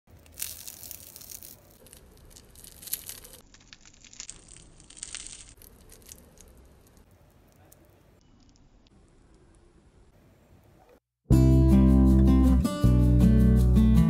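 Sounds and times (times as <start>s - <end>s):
fried coating crunching: 0.1s - 8.8s.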